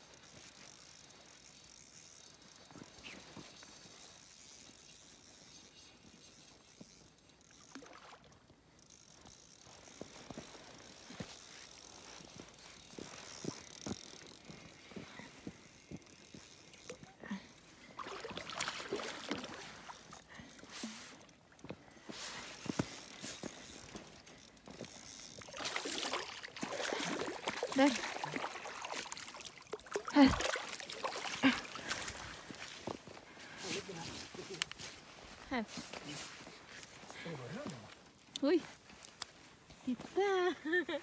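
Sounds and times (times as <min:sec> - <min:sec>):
fishing reel clicking: 0:00.2 - 0:07.8, 0:08.8 - 0:14.8, 0:15.5 - 0:17.0, 0:22.5 - 0:26.1
fish splashing: 0:18.0 - 0:20.2, 0:25.4 - 0:32.5.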